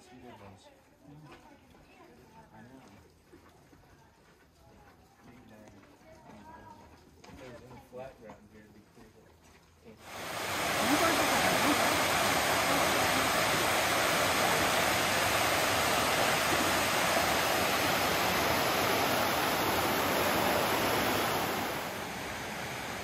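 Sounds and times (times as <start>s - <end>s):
water rushing: 10.0s - 23.0s.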